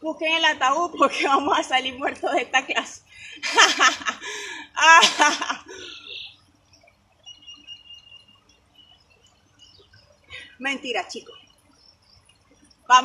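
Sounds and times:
woman laughing: 3.4s - 6.2s.

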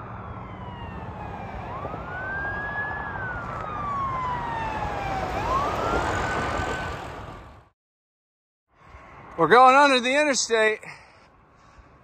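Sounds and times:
emergency siren wailing: 0.0s - 7.7s
road traffic noise: 0.0s - 7.8s, 8.7s - 12.0s.

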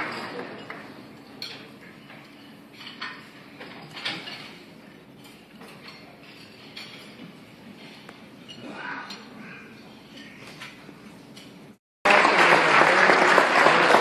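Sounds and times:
dishes and cutlery clinking: 0.0s - 11.8s.

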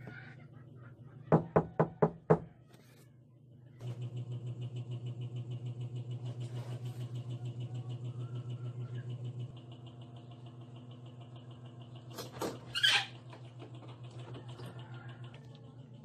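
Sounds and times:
knuckles knocking on a door: 1.3s - 2.5s.

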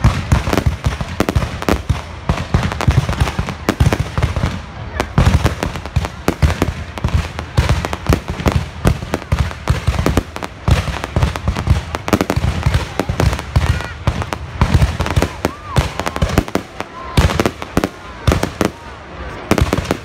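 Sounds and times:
firework crackling: 0.0s - 20.0s.

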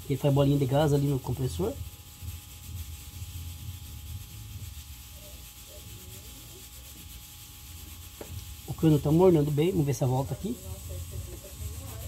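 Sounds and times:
refrigerator compressor humming: 0.0s - 12.0s.

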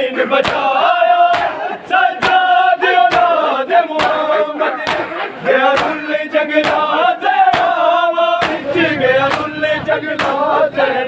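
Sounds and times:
men chanting a lament: 0.0s - 11.0s
chest-beating slaps: 0.4s - 0.7s, 1.3s - 1.6s, 2.2s - 2.4s, 3.1s - 3.4s, 4.0s - 6.0s, 6.6s - 6.9s, 7.5s - 7.8s, 8.4s - 8.7s, 9.3s - 9.5s, 10.2s - 10.4s.

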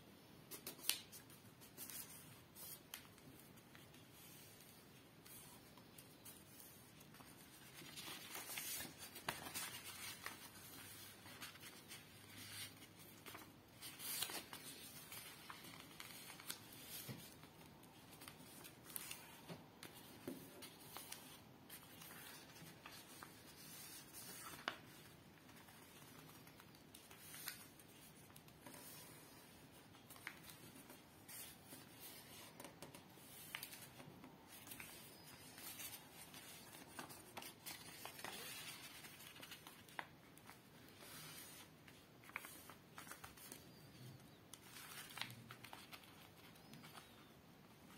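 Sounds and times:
paper rustling and crackling: 0.5s - 47.9s.

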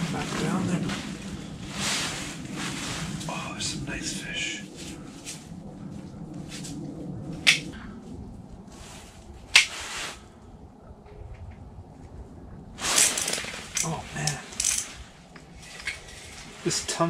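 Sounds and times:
rod rustling and rattling: 12.9s - 15.0s
reel being wound in: 14.5s - 14.9s
fishing reel clicks: 14.6s - 14.9s.

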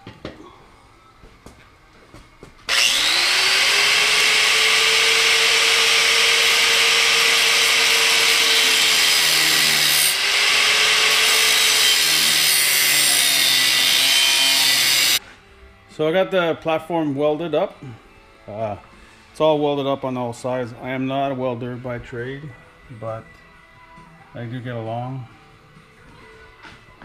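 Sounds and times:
angle grinder cutting steel: 2.7s - 15.2s.

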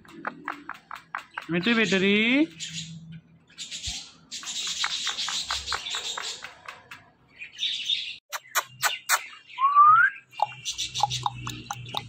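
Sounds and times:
sharp bird clicks: 0.0s - 2.8s, 3.8s - 7.1s, 8.3s - 12.0s
parakeet chattering chirps: 8.3s - 9.5s, 10.2s - 12.0s.

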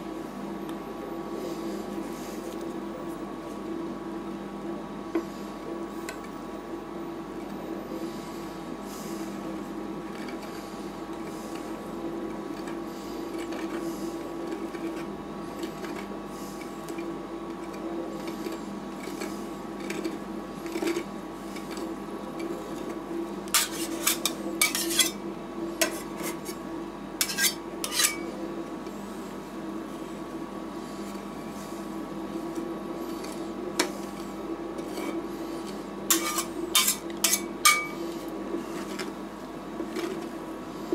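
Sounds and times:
metal spatulas scraping and clinking: 23.5s - 25.2s, 27.2s - 28.3s, 36.1s - 38.2s.

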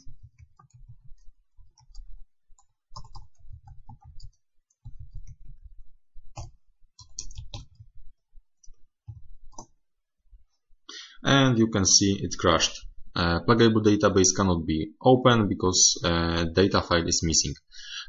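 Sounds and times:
computer keyboard typing: 0.0s - 8.0s, 8.6s - 9.8s.

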